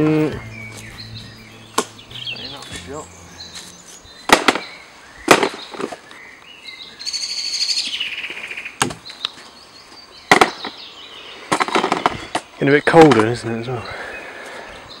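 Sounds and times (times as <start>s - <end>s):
bird trilling: 0.0s - 6.0s.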